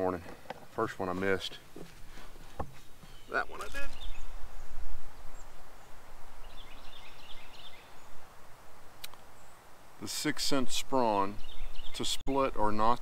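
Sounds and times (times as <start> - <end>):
faint distant bird chirps: 0.8 - 12.7
wind rumble on microphone: 3.7 - 8.9.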